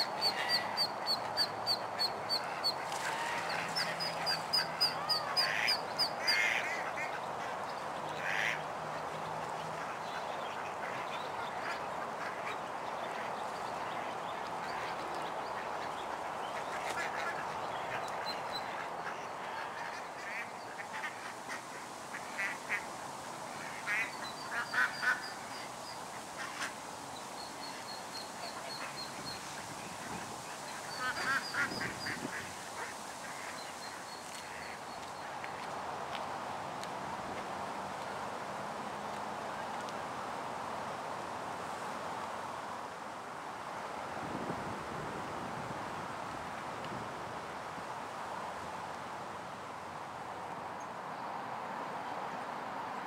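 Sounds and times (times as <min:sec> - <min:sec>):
ducks quacking: 0:00.0 - 0:08.6, 0:15.6 - 0:22.8, 0:23.6 - 0:25.7, 0:30.0 - 0:34.8
steady hiss: 0:10.5 - 0:53.0.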